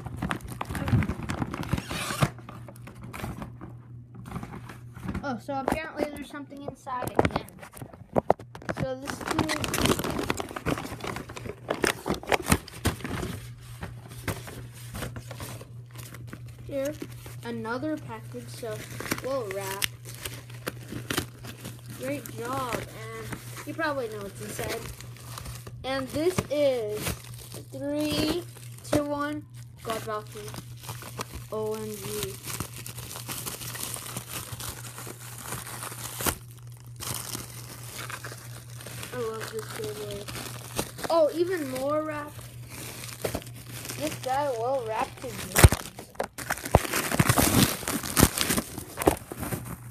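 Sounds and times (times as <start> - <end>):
plastic wrap crinkling: 0.0 - 5.4, 6.3 - 49.9
steady low hum: 0.0 - 49.9
bubble wrap snap: 45.2 - 49.9.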